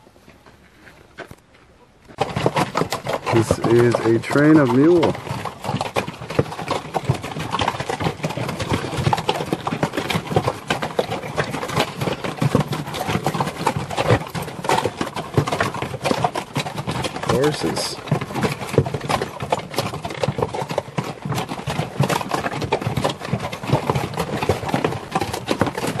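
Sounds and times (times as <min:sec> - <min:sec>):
hooves clopping on stone and dirt: 0:00.0 - 0:26.0.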